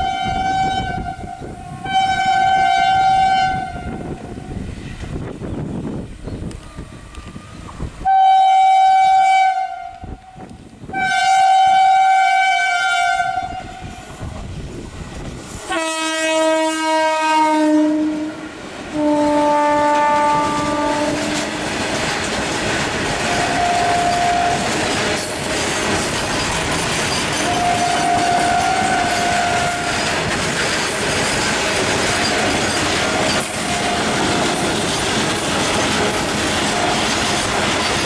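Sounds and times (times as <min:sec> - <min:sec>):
locomotive air horn blasts: 0:00.0 - 0:04.2, 0:08.0 - 0:14.1, 0:15.7 - 0:21.6, 0:23.2 - 0:24.8, 0:27.4 - 0:30.0
freight wagons clattering on rails: 0:20.2 - 0:38.0.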